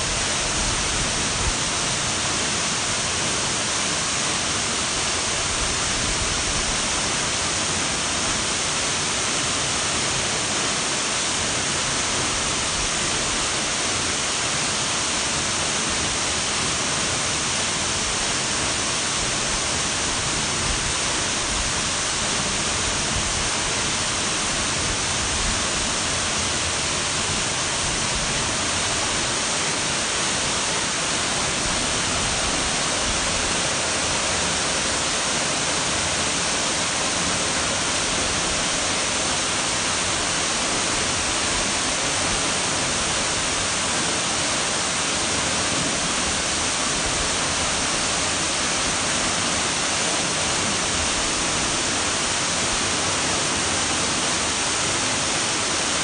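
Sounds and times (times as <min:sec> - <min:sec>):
waterfall splashing into pool: 0:00.0 - 0:56.0.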